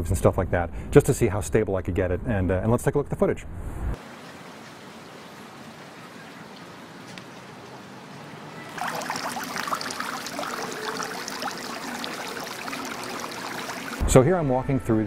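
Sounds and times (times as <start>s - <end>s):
fountain water splashing: 4.0s - 14.0s.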